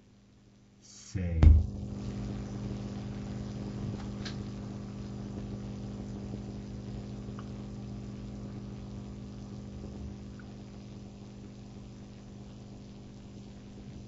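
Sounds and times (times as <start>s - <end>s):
steady low hum: 0.6s - 13.9s.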